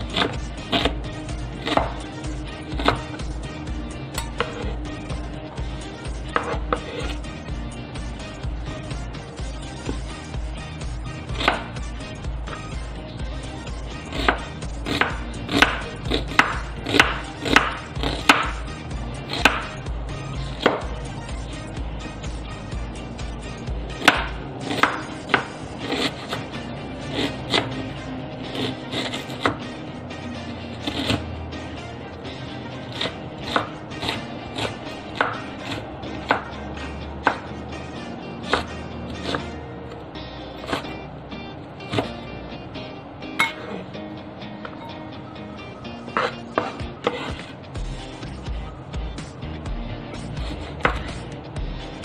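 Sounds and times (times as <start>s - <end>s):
knife chopping on cutting board: 0.0s - 3.2s, 4.2s - 4.8s, 6.2s - 7.2s, 11.2s - 11.8s, 14.1s - 18.6s, 19.2s - 19.8s, 20.5s - 20.9s, 23.9s - 27.8s, 28.5s - 29.6s, 30.7s - 31.3s, 32.9s - 37.6s, 38.4s - 39.6s, 40.6s - 40.9s, 41.9s - 42.2s, 46.1s - 47.6s, 50.2s - 51.2s.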